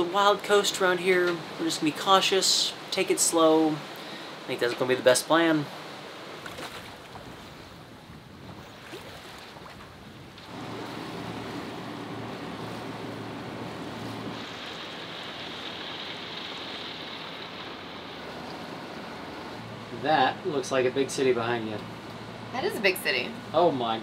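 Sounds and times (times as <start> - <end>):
wind and water rushing: 0.0 - 24.0
boat engine hum: 5.9 - 24.0.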